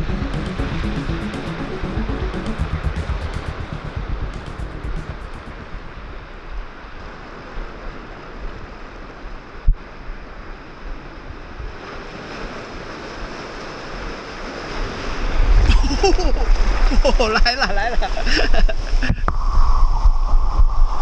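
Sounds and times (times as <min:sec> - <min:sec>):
wave splashing: 0:00.0 - 0:21.0
surf washing against rocks: 0:04.8 - 0:19.4
wind buffeting microphone: 0:18.0 - 0:21.0.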